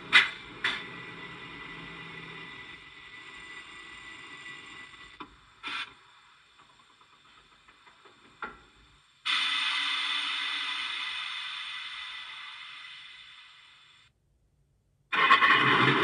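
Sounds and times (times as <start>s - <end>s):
diesel locomotive running through speaker: 0.0s - 5.2s
short hiss: 9.2s - 14.1s.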